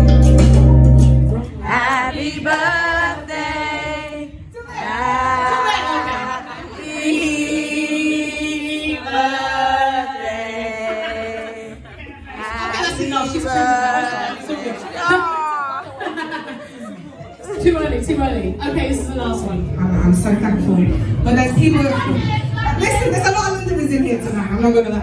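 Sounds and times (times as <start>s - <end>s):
voices singing unaccompanied: 1.5s - 15.4s.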